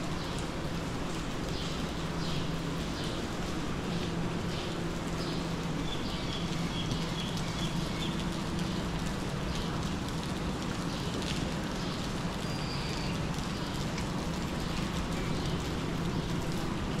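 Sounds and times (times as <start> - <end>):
constant low hum: 0.0 - 17.0
steady rain falling: 0.0 - 17.0.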